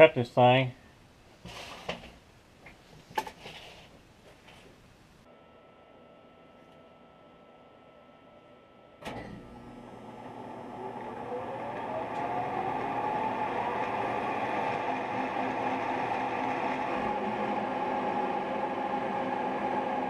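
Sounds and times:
spindle motor whine: 0:05.3 - 0:20.0.

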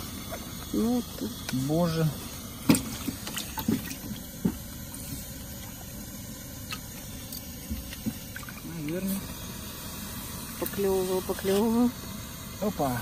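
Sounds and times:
steady hiss: 0:00.0 - 0:13.0
fish splashing in bucket: 0:02.4 - 0:09.0.

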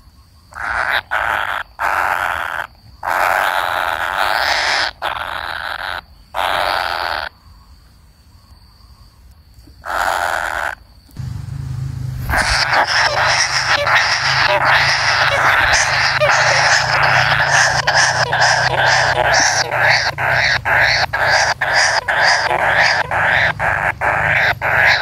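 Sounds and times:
young kingfisher begging calls: 0:00.6 - 0:07.3, 0:12.3 - 0:25.0.

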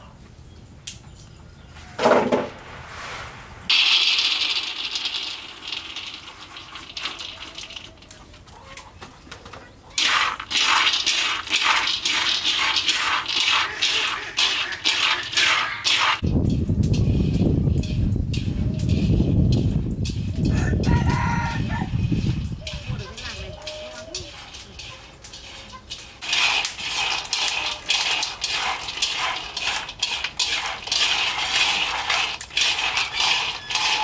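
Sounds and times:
low rumble: 0:02.5 - 0:03.7, 0:16.2 - 0:20.9
peanuts poured into wok: 0:02.9 - 0:08.4, 0:10.0 - 0:34.0
chopsticks stirring peanuts: 0:03.7 - 0:08.4, 0:10.0 - 0:34.0.

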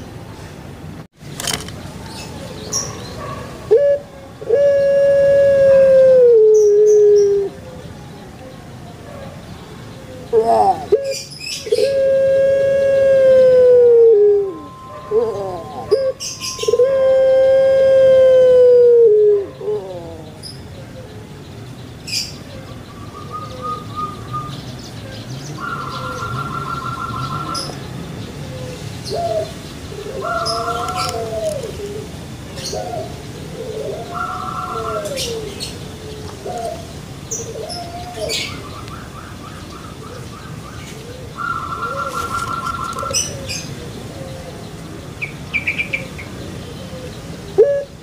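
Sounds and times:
dove cooing: 0:02.4 - 0:08.0, 0:10.0 - 0:21.2, 0:25.6 - 0:38.6, 0:40.9 - 0:44.7, 0:45.5 - 0:48.0
small birds chirping: 0:19.4 - 0:48.0.

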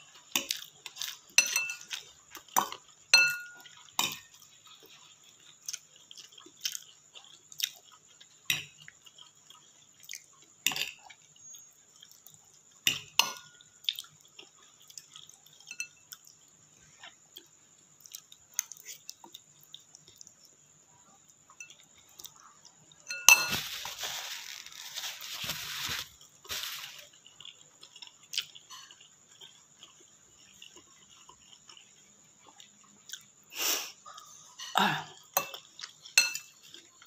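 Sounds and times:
chewing: 0:00.0 - 0:23.1, 0:23.7 - 0:37.0
metal fork clinking against bowl: 0:01.4 - 0:02.0, 0:03.1 - 0:04.3, 0:23.1 - 0:23.6, 0:36.2 - 0:36.5.

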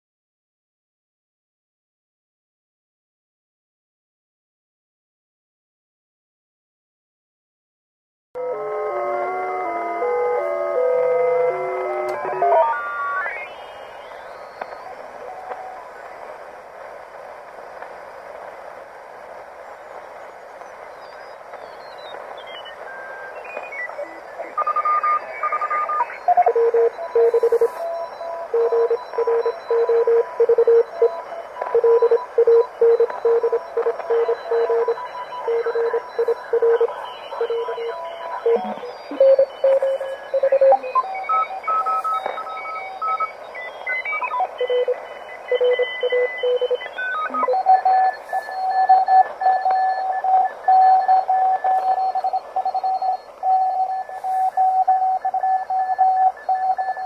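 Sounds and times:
morse code tones: 0:08.4 - 0:16.1, 0:22.1 - 0:57.0
radio band hiss: 0:09.0 - 0:57.0.

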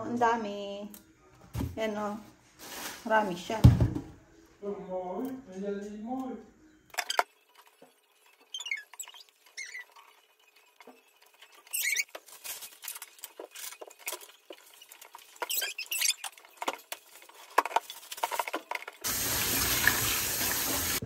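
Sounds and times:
leaves rustling: 0:02.5 - 0:03.6
leaves squeaking: 0:07.0 - 0:18.2.

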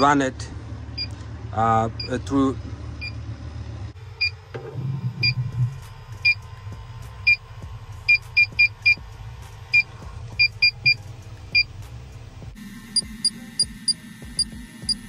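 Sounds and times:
leak detector high beeps: 0:05.2 - 0:05.4, 0:12.7 - 0:15.0.

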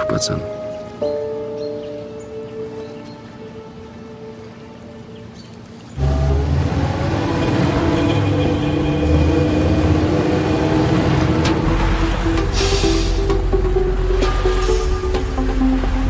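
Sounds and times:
bus engine and road noise: 0:05.9 - 0:16.0.

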